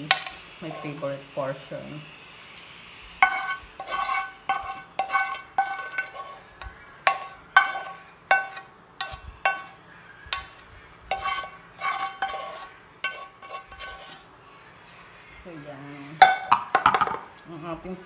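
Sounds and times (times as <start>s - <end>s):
metal spoon clinking on pan: 3.2s - 14.2s.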